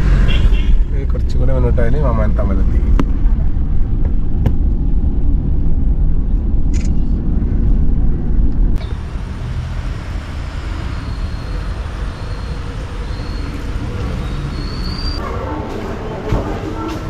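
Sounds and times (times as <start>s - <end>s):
car cabin road rumble: 0.0s - 15.3s.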